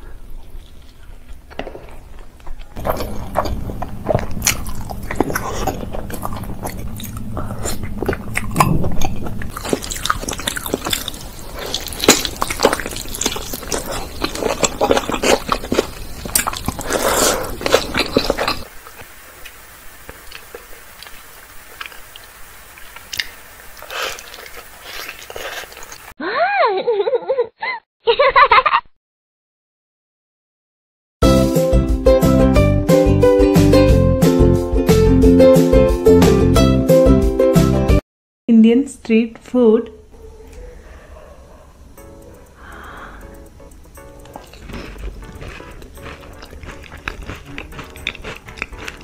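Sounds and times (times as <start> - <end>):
wet clicky chewing: 2.4 - 18.7, 41.9 - 49.0.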